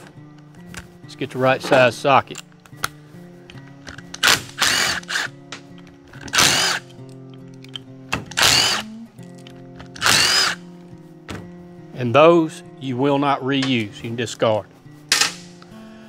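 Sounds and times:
impact driver bursts with whine: 0:04.2 - 0:05.4, 0:06.3 - 0:06.8, 0:08.3 - 0:09.0, 0:10.0 - 0:10.6.

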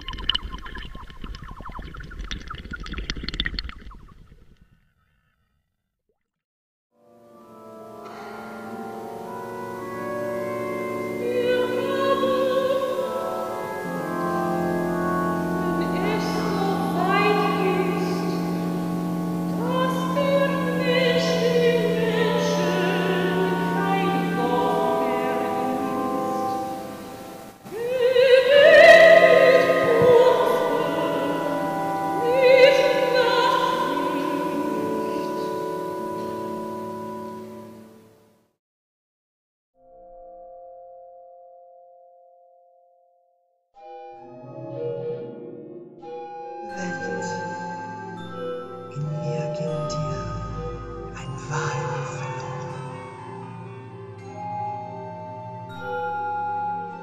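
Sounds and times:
woman singing operatically: 0:10.6 - 0:36.1.

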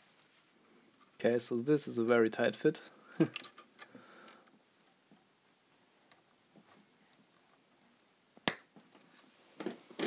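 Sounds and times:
sharp snap: 0:08.4 - 0:08.7.

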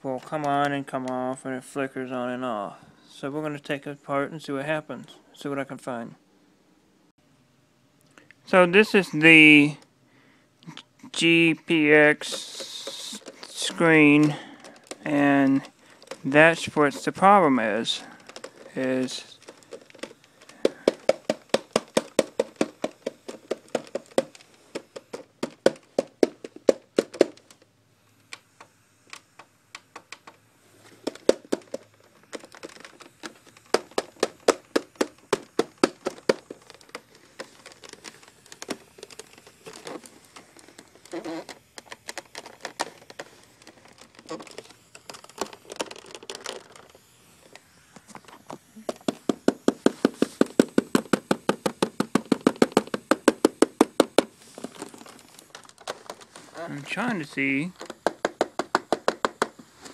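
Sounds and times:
hands clicking plastic casing: 0:11.7 - 0:27.6, 0:29.1 - 0:59.9.

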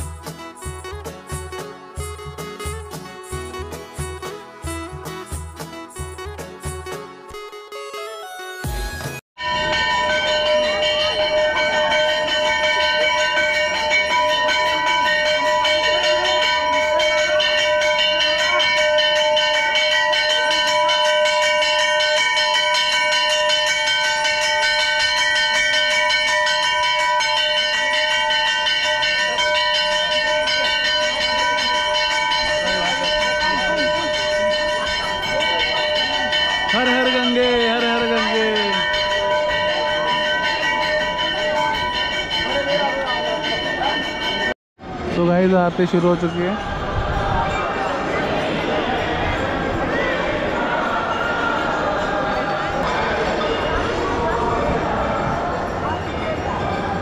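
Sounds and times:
temple bells ringing: 0:00.0 - 0:08.0, 0:09.4 - 0:57.0
man's voice: 0:36.7 - 0:39.0, 0:45.1 - 0:46.8.

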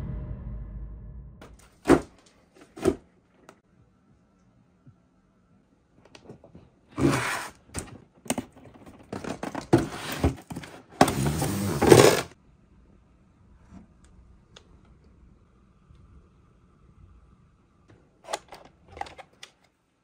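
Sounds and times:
cardboard packaging scraping and rustling: 0:07.0 - 0:12.4.

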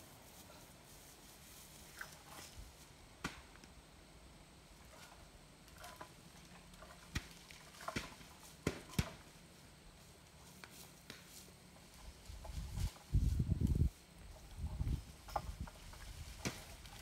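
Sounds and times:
apples falling knocks: 0:06.0 - 0:09.3, 0:15.4 - 0:17.0.

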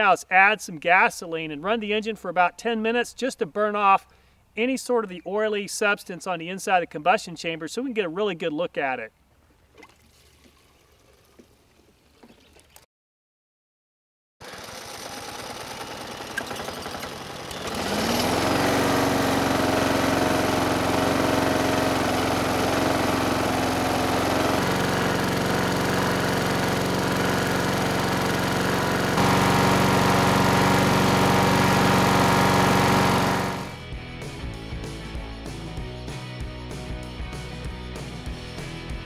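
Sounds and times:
lawn mower engine running: 0:14.4 - 0:33.8
music: 0:33.7 - 0:39.0.

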